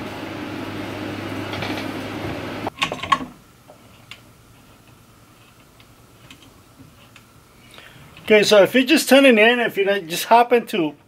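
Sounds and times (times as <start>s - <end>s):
air conditioner hum: 0.0s - 11.0s.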